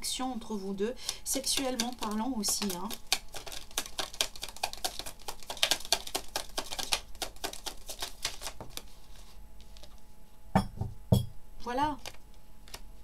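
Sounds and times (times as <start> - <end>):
cards being shuffled: 1.3 - 10.0, 12.0 - 13.0.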